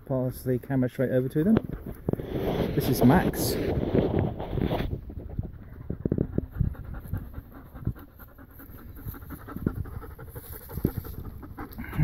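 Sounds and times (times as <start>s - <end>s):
dog panting: 5.2s - 12.0s.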